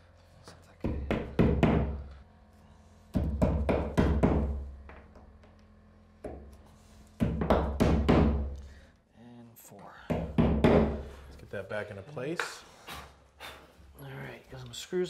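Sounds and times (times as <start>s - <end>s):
hammer tapping wall anchors: 0.8s - 2.0s, 3.1s - 5.6s, 7.2s - 8.7s, 10.0s - 11.1s.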